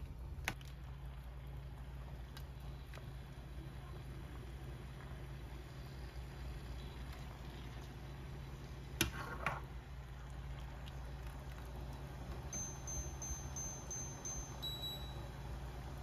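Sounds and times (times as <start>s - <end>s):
steady low hum: 0.0s - 16.0s
light ringing clinks: 12.4s - 15.5s
faint high tone pulsing: 12.4s - 16.0s.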